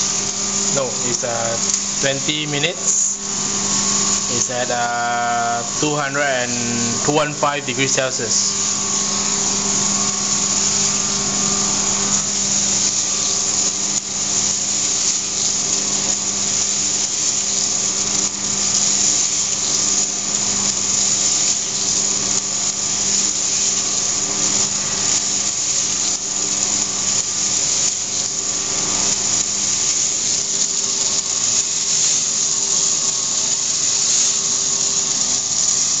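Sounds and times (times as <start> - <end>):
fans rushing: 0.0 - 9.2
motor hum: 0.0 - 36.0.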